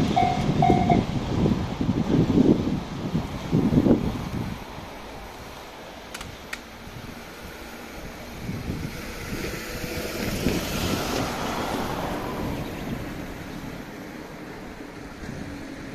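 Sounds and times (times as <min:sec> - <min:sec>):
vehicle running: 0:00.0 - 0:01.8
wind on microphone: 0:00.0 - 0:15.9
sharp clicks: 0:06.1 - 0:06.7.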